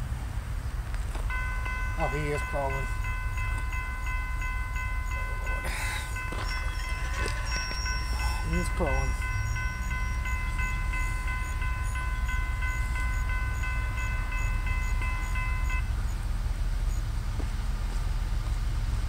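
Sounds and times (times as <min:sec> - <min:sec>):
crossing warning bell ringing: 0:01.1 - 0:16.1.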